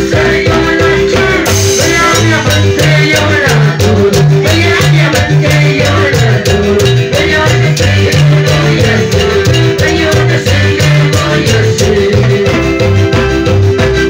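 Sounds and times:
live band dance music: 0.0 - 14.0.

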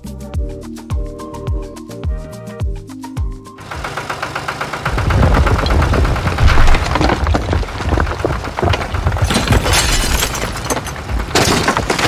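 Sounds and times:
heavy machinery engine rumble: 3.6 - 12.0
cracking and crashing: 5.0 - 12.0.

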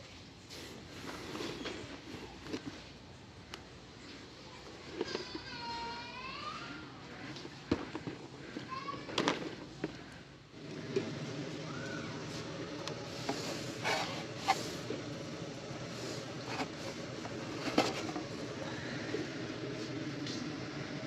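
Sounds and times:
store background din: 0.4 - 21.0
goods clacking and knocking: 16.4 - 18.5.

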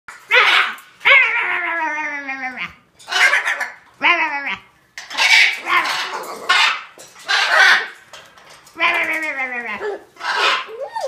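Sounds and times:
parrot imitating dog barks: 0.2 - 7.9.

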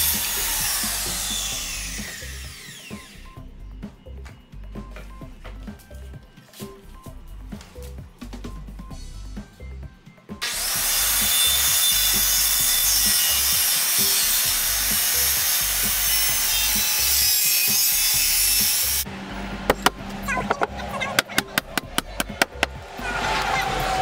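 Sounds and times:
circular saw cutting wood: 0.0 - 3.3, 10.4 - 24.0.

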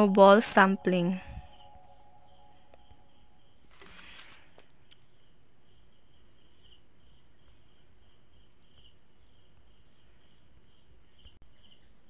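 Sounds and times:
insects chirping: 0.0 - 12.0.

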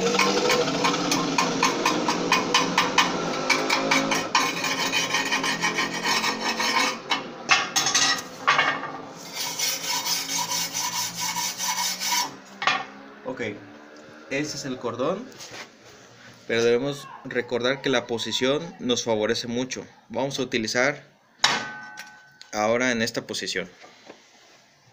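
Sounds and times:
wire brush scrubbing steel: 0.0 - 7.2, 9.2 - 12.4.

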